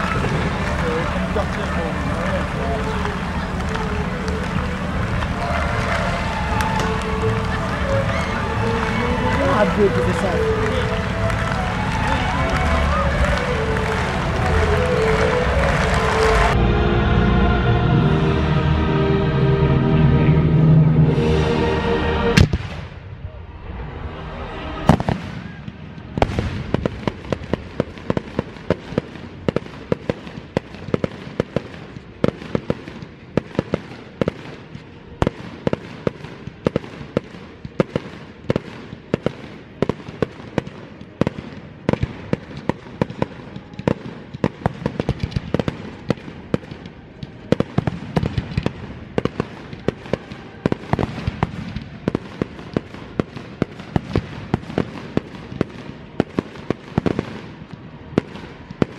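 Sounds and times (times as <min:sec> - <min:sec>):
fireworks bursting with sharp bangs: 0:00.0 - 0:16.6, 0:22.4 - 0:23.2, 0:24.7 - 0:58.9
continuous rumble and hiss: 0:00.0 - 0:58.9.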